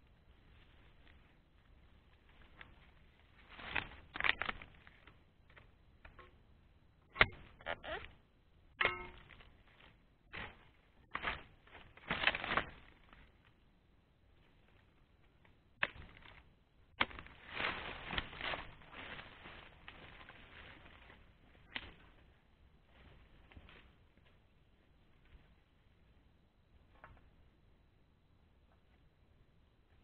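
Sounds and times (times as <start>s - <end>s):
rustling through leaves: 17.0s - 22.1s.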